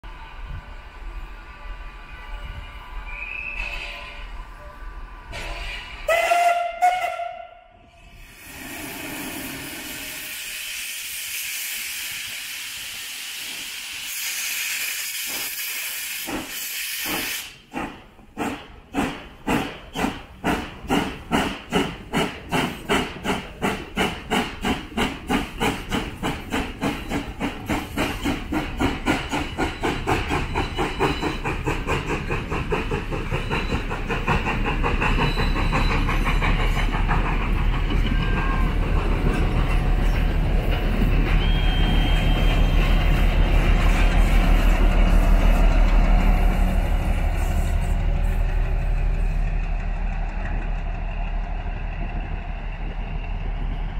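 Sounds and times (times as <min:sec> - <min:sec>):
steam hissing from locomotive: 0:08.0 - 0:48.6
locomotive exhaust chuffs: 0:15.2 - 0:53.9.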